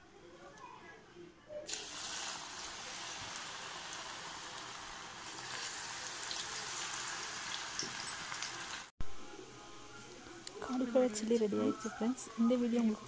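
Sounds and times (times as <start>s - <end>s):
food sizzling in hot oil: 1.7s - 8.9s.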